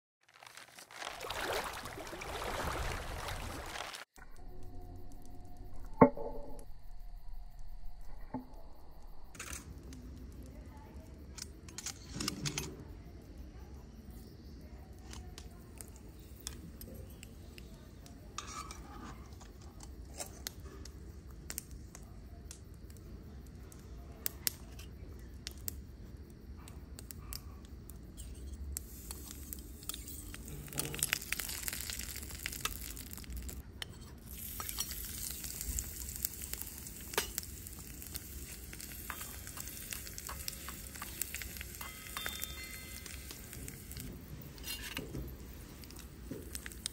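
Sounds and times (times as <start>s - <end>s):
spatula scraping in a wok: 18.3s - 20.4s, 36.9s - 46.0s
oil sizzling in a wok: 28.1s - 46.9s.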